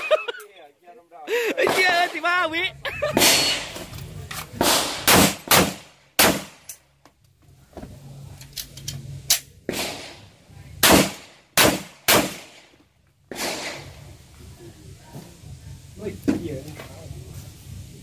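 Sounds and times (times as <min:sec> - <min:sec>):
pistol shots: 0:04.6 - 0:06.7, 0:09.7 - 0:10.2, 0:10.8 - 0:12.7, 0:13.3 - 0:13.9.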